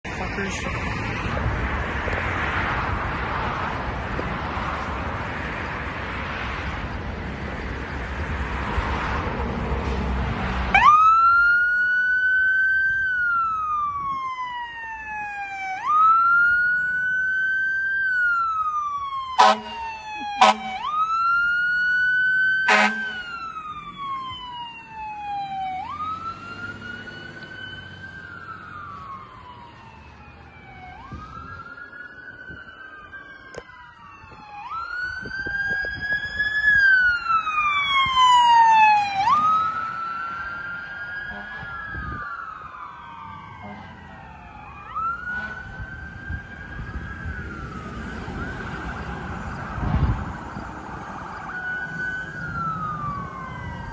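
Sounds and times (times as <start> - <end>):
fire engine siren wailing: 0.0 - 53.9
second siren: 10.6 - 53.9
fire engine horn blasts: 19.3 - 21.0, 22.7 - 23.4, 41.2 - 41.8, 43.6 - 44.0, 45.2 - 45.9.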